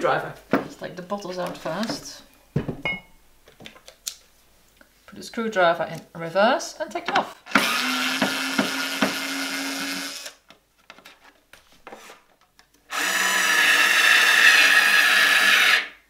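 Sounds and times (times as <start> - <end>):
cordless screwdriver whining: 7.5 - 10.4, 12.9 - 16.0.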